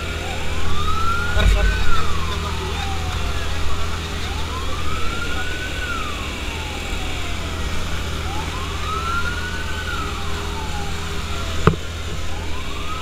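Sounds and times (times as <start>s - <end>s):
steady low rumble: 0.0s - 8.4s
fire truck siren wailing: 0.0s - 13.0s.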